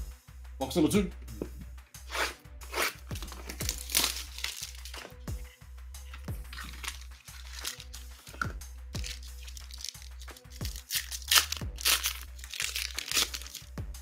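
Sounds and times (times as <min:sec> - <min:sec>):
packaging crinkling and tearing: 0:02.8 - 0:05.2, 0:06.5 - 0:08.4, 0:09.0 - 0:13.7.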